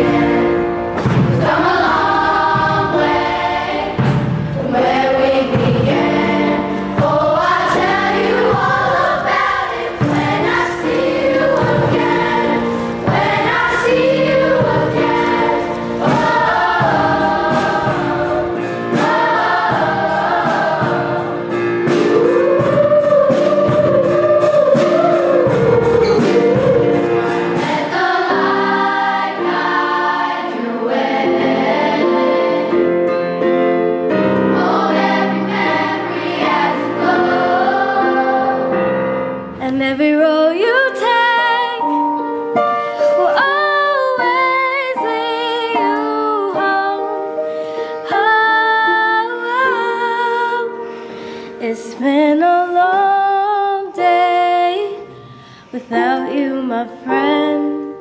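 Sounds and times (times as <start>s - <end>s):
choir singing with accompaniment: 0.0s - 39.6s.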